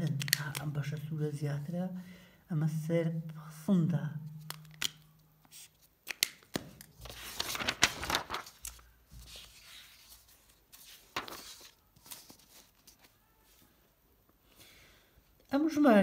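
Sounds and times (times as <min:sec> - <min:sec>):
pages turning and rustling: 0:04.4 - 0:13.2.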